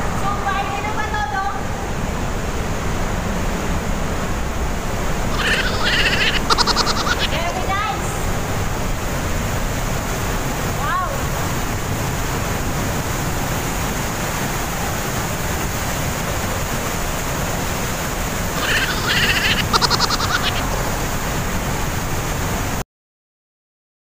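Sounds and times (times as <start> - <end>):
waterfall rushing: 1.7 - 22.8
high rapid pulsing sound: 5.3 - 7.6, 18.6 - 20.8.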